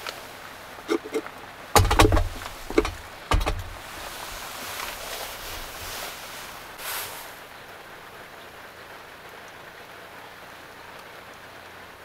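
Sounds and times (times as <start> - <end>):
clay pot clunking on metal stove: 0.9 - 1.2, 1.8 - 3.8.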